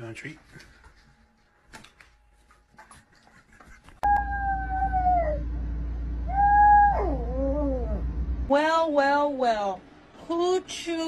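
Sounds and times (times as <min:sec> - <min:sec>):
small dog howling: 0:04.0 - 0:05.5, 0:06.3 - 0:08.0
steady low hum: 0:04.0 - 0:11.0.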